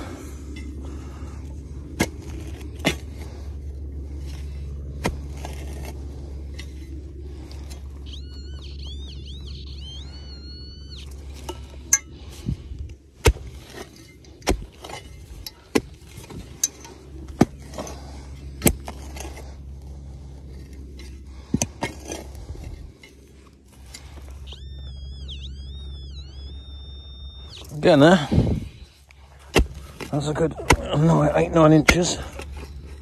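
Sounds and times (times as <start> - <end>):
spade scraping into stony soil: 2.0 - 7.9, 13.2 - 24.4
metal detector warbling tone: 7.6 - 12.3, 23.9 - 29.0.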